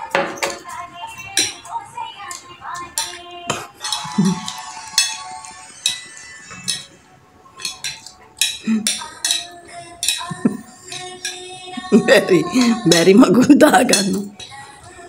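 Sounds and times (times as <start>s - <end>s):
background music: 0.0s - 15.0s
spoons clinking on plates: 0.0s - 15.0s.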